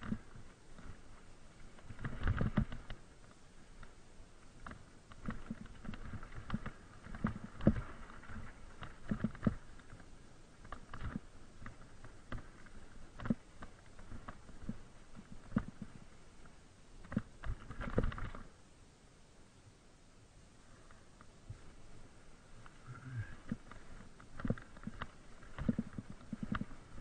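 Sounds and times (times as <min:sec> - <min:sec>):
mountain bike rattling over bumps: 0:01.6 - 0:03.2, 0:04.6 - 0:15.8.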